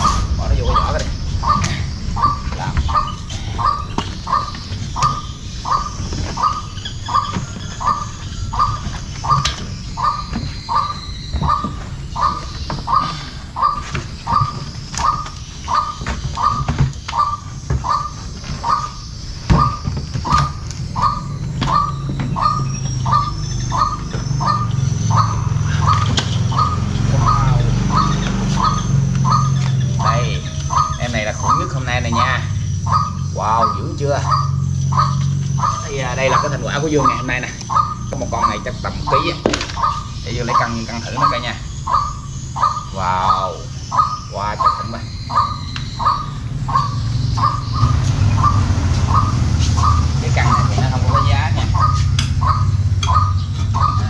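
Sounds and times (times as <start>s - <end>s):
bird calling: 0.0s - 54.0s.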